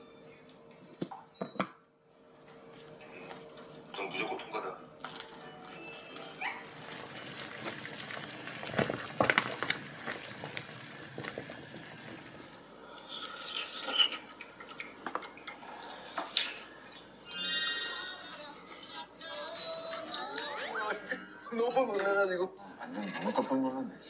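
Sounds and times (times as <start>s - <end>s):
sauce pouring: 6.6s - 14.9s
water bubbling in pot: 6.7s - 12.8s.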